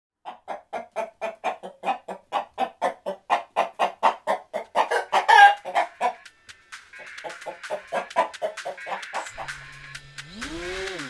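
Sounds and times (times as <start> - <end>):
hen clucking: 0.2 - 6.3, 6.9 - 9.7
hen squawking: 0.3 - 6.2, 7.0 - 9.8.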